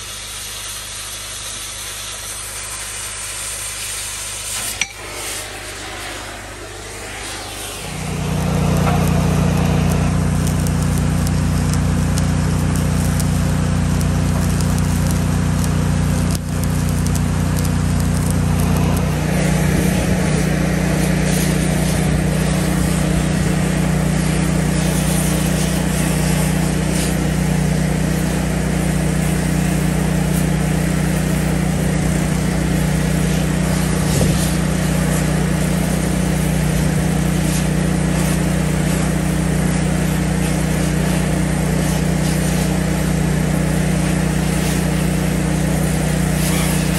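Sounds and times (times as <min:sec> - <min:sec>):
motor running with hum and hiss: 0:00.0 - 0:46.9.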